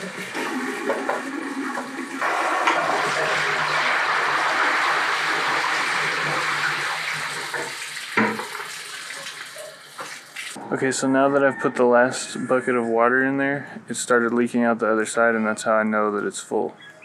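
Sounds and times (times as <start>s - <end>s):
water pouring into funnel: 0.0s - 9.6s.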